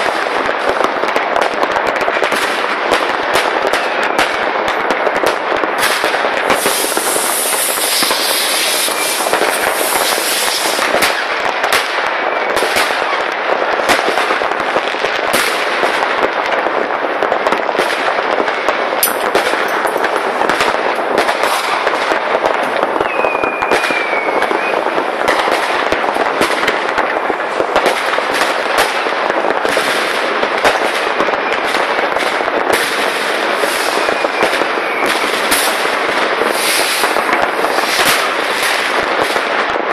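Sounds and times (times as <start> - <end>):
fireworks crackling and banging: 0.0 - 39.9
firework whistle: 5.7 - 11.3, 19.0 - 26.4, 30.7 - 39.4.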